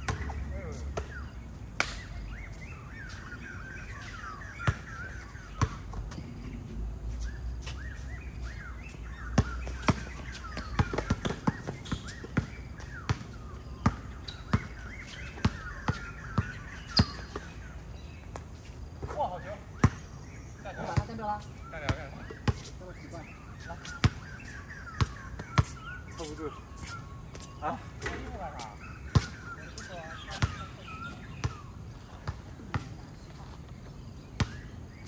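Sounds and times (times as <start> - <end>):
birds chirping: 0.0 - 35.0
basketball bouncing on hard court: 9.4 - 14.7.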